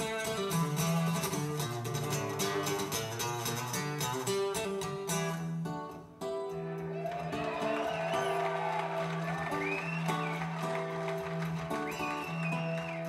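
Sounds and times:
acoustic guitar through speakers: 0.0s - 13.0s.

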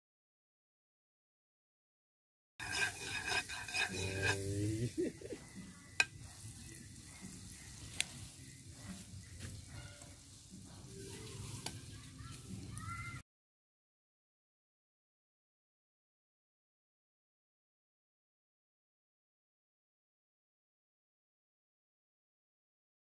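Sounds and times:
metal spoon scraping a pan: 2.6s - 11.9s
egg sizzling in a frying pan: 2.6s - 13.2s.

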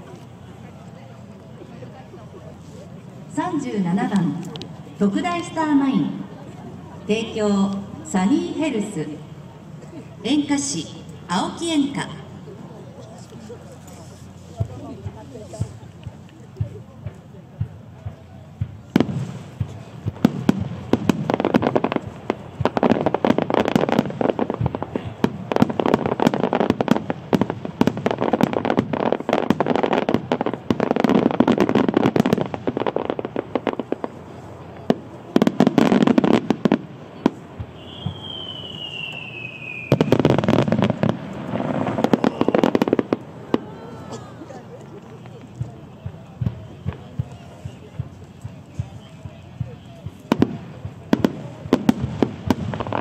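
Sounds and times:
fireworks bangs and crackle: 0.0s - 53.0s
falling whistle: 37.8s - 40.1s, 42.2s - 42.7s.

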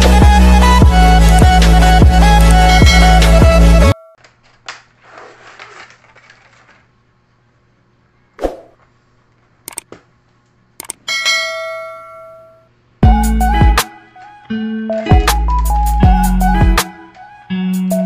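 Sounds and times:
music: 0.0s - 4.0s, 13.0s - 18.0s
packaging rustling: 4.2s - 7.0s.

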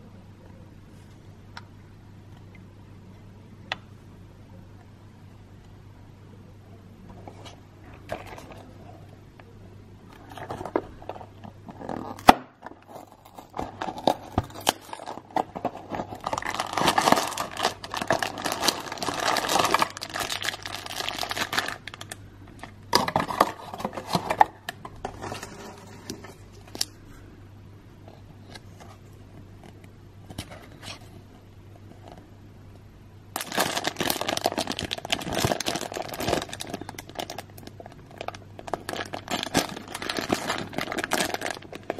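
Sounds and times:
plastic bags crinkling: 12.9s - 27.0s, 33.4s - 41.9s.

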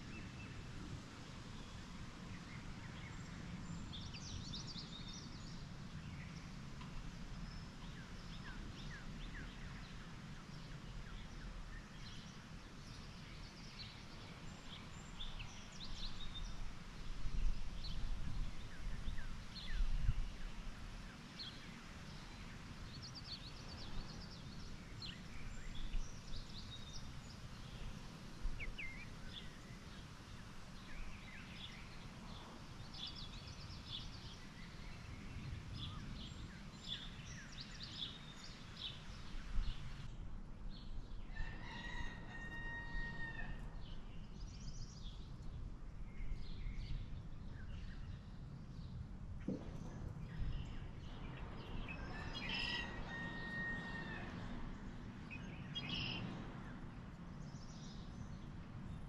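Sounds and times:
songbirds chirping: 0.0s - 59.0s
low outdoor rumble: 43.6s - 53.1s, 53.8s - 59.0s.

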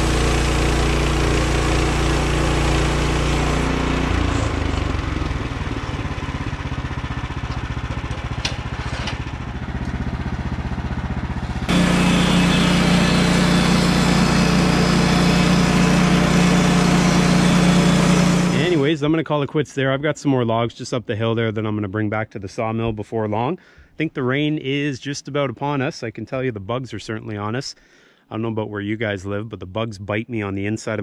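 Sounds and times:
small engine idling: 0.0s - 18.8s
bandsaw mill engine running: 0.0s - 19.0s.

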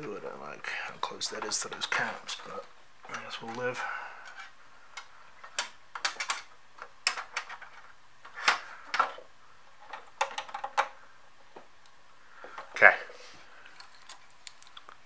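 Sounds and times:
ribbon cable clicking and rustling: 13.6s - 15.0s.

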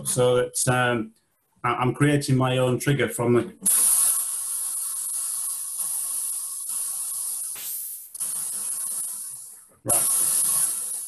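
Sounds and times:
synthesizer noise hissing bursts: 3.6s - 11.0s.

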